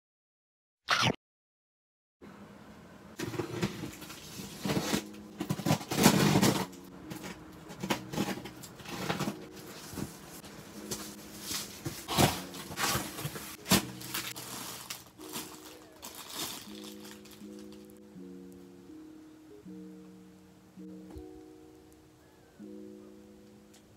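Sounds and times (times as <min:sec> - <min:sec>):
cardboard flaps scraping: 0:03.2 - 0:06.7, 0:08.0 - 0:16.8
packing tape pulled off box: 0:03.2 - 0:10.2, 0:10.8 - 0:17.9
plastic bags crinkling: 0:03.2 - 0:18.0.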